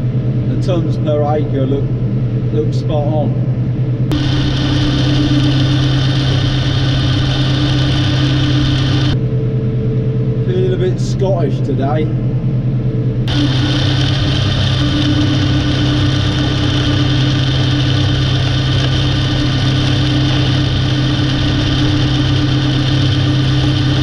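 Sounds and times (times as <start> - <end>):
flail mower running: 4.1 - 9.2, 13.3 - 24.0
tractor engine running: 4.1 - 9.2, 13.2 - 24.0.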